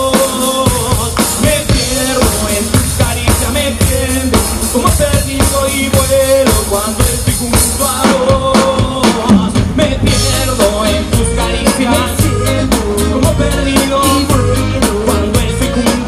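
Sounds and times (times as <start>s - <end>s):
drum kit beat: 0.0s - 16.0s
rock band playing: 0.0s - 16.0s.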